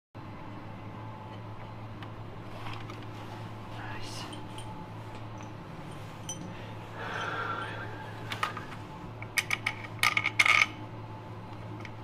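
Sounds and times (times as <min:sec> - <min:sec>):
steady low hum: 0:00.2 - 0:12.0
metal tools clinking and scraping: 0:05.4 - 0:07.4, 0:09.4 - 0:10.8.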